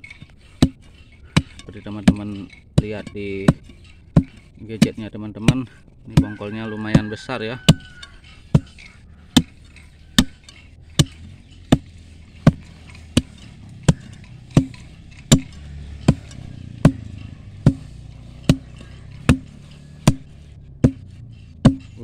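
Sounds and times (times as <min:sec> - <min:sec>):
steel bar striking stony soil: 0:00.0 - 0:22.0.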